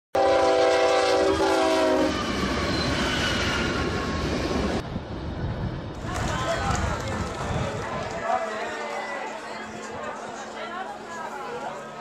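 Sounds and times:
train horn chord: 0.2s - 2.2s
moving train running: 0.2s - 12.0s.

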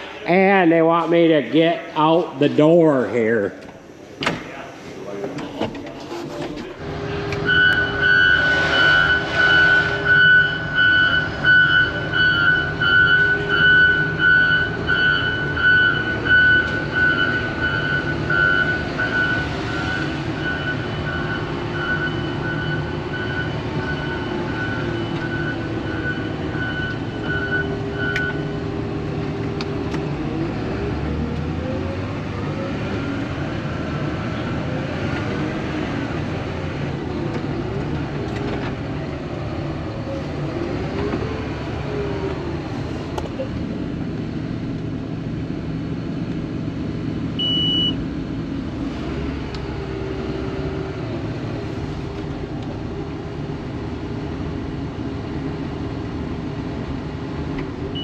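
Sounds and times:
diesel engine running: 5.0s - 58.0s
reverse alarm beeping: 7.4s - 28.6s, 47.4s - 48.0s.

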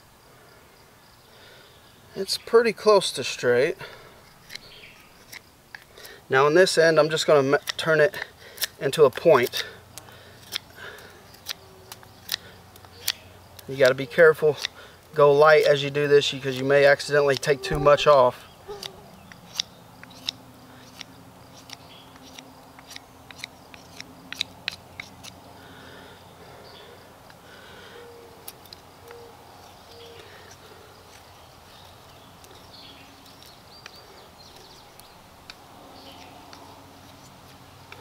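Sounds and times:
birds chirping faintly: 0.4s - 38.0s
knife shaving wood clicks: 4.2s - 6.2s, 7.5s - 25.4s, 29.6s - 38.0s
bird hooting: 17.4s - 19.3s, 27.7s - 28.4s, 29.0s - 30.4s.

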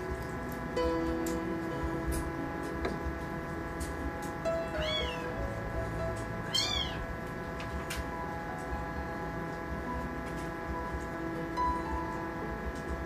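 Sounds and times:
soft background music: 0.0s - 13.0s
kitten mewing: 4.7s - 5.2s, 6.5s - 7.0s.

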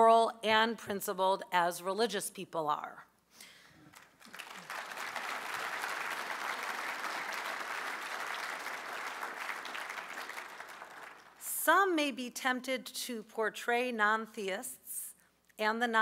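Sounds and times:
audience applause: 3.9s - 11.4s.

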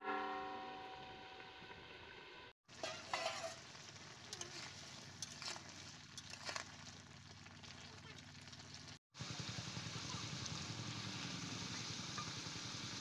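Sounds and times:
curry sizzling in a pan: 2.6s - 13.0s
metal ladle scraping a pan: 2.7s - 7.0s.

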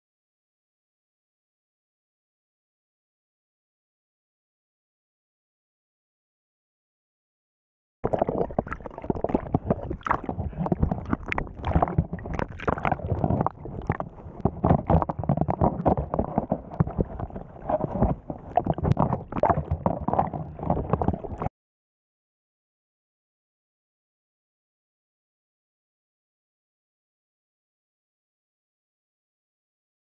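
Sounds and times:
muffled underwater sloshing: 8.0s - 21.5s
small knocks and crackles: 9.2s - 21.5s.

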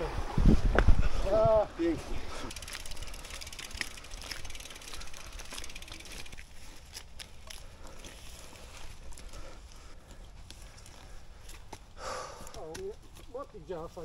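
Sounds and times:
wind and tyres rumbling: 0.0s - 14.0s
bicycle freewheel ticking: 2.3s - 9.9s.

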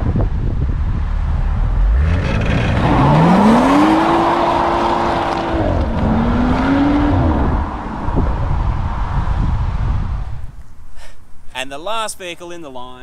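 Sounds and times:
car engine revving: 0.5s - 10.0s.

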